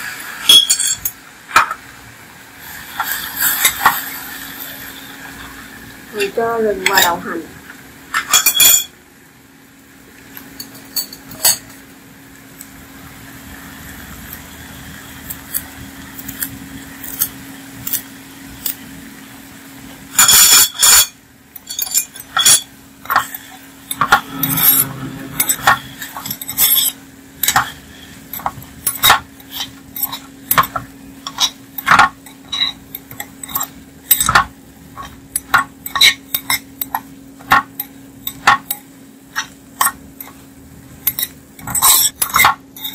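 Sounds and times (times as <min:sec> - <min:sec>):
faint sizzle of meat browning: 0:01.2 - 0:21.6
metal spoon scraping clay pot: 0:20.2 - 0:34.4, 0:41.1 - 0:42.9.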